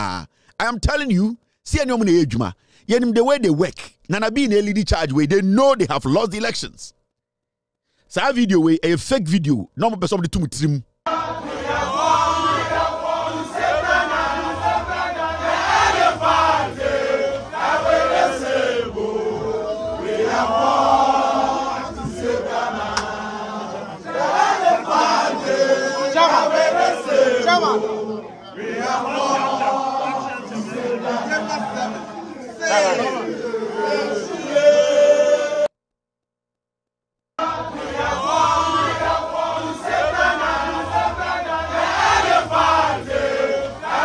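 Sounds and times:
crowd chanting: 11.1s - 35.7s, 37.4s - 44.0s.

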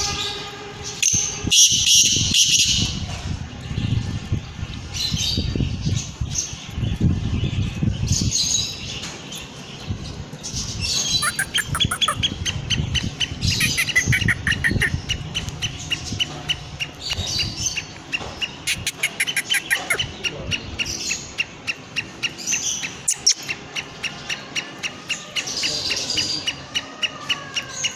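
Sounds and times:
francolin harsh calls: 11.2s - 12.4s, 13.4s - 15.1s, 18.7s - 20.1s
fast steady chirping: 11.2s - 15.8s, 18.7s - 20.1s.

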